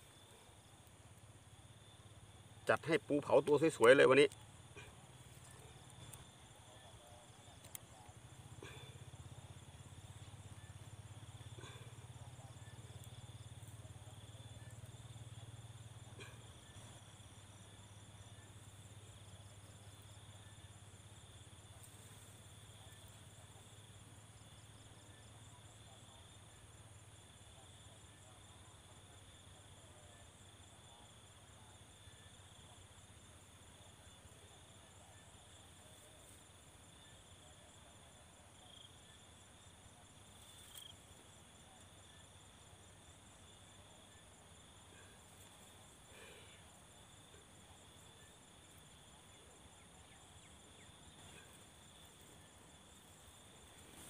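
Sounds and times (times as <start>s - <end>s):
insects chirring: 0.0s - 54.0s
faint clicks: 7.6s - 8.2s.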